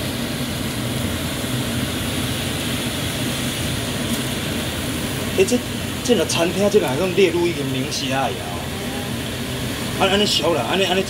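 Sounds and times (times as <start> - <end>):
kitchen appliance humming: 2.4 - 11.0.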